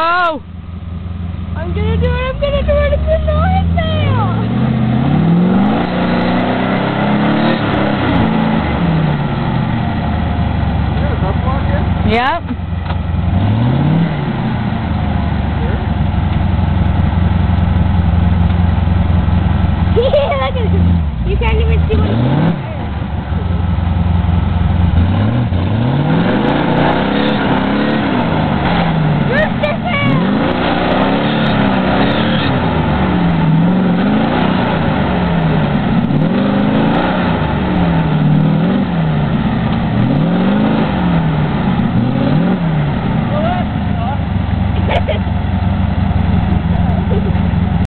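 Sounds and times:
engine revving hard: 1.6s - 10.1s, 13.2s - 14.9s, 19.9s - 22.9s, 24.7s - 44.2s.

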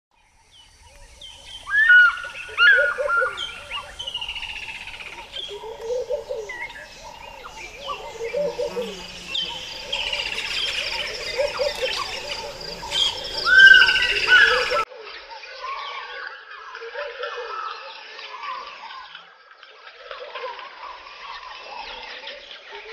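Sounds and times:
birds chirping and whistling: 0.6s - 14.9s
repeated low bird call: 1.6s - 14.8s.

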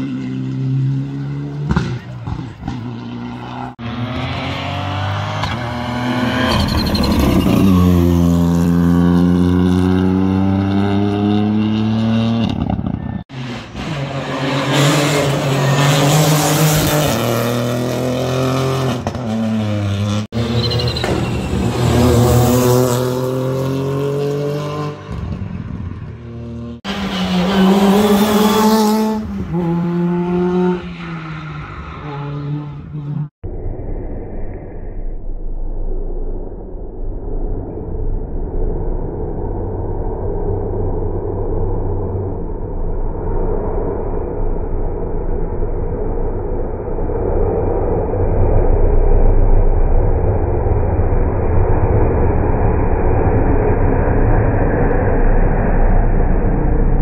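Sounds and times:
rally car engines revving: 0.0s - 33.4s.

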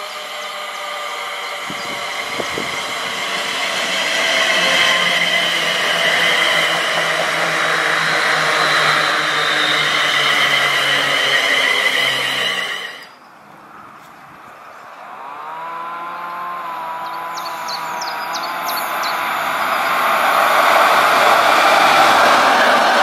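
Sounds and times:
train wheels rumbling on rails: 0.0s - 13.2s, 16.4s - 23.0s.

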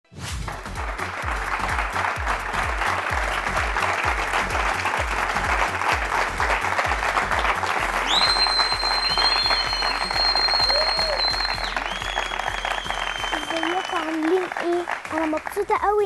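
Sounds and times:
audience applauding: 0.4s - 16.0s
music with bass beat: 0.5s - 13.3s.

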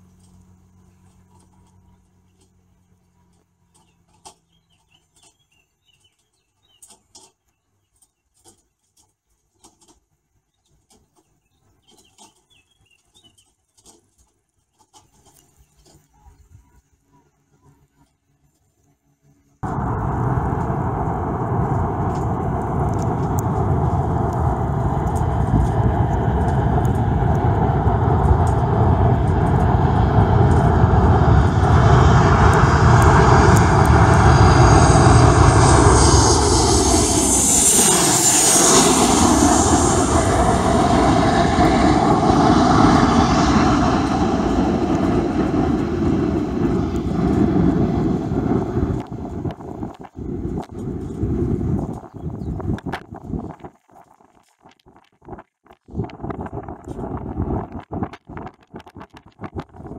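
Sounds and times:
jet engines roaring: 19.6s - 53.6s.

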